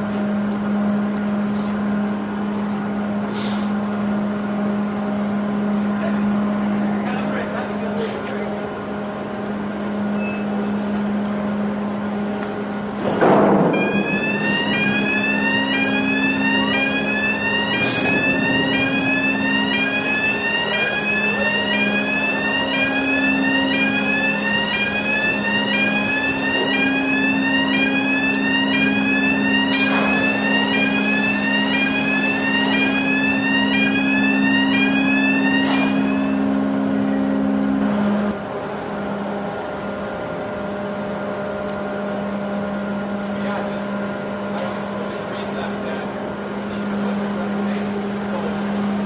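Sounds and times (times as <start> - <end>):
hydraulic machinery hum: 7.8 - 41.3
warning alarm whooping: 13.6 - 38.3.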